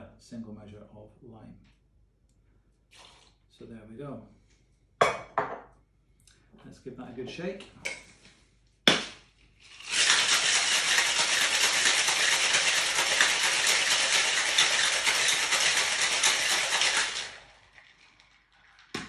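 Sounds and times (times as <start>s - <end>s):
ice rattling in cocktail shaker: 9.6s - 19.0s.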